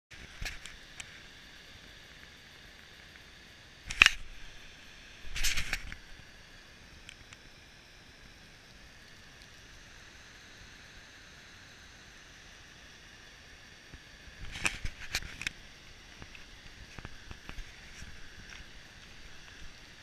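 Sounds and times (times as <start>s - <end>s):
faint waterfall hiss: 0.2s - 20.0s.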